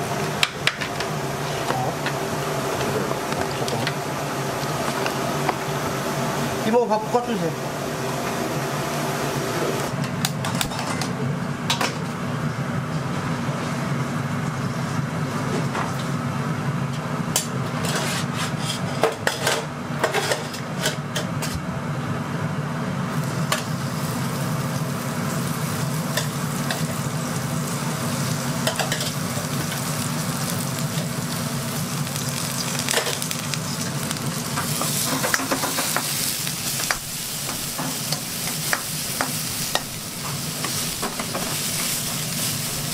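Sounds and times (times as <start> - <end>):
onion sizzling in oil: 0.0 - 9.9, 23.0 - 42.9
steady low hum: 0.0 - 10.3.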